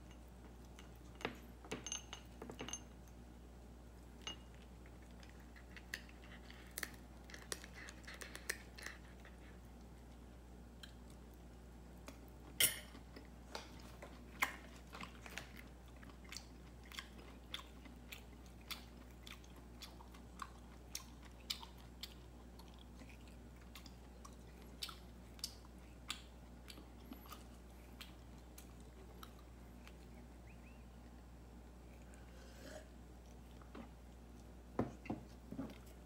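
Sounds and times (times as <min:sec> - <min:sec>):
cat crunching food: 0:04.4 - 0:12.3.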